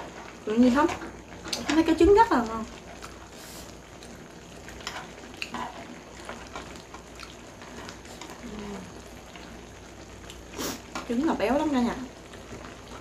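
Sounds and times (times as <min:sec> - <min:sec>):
hotpot bubbling: 0:00.0 - 0:13.0.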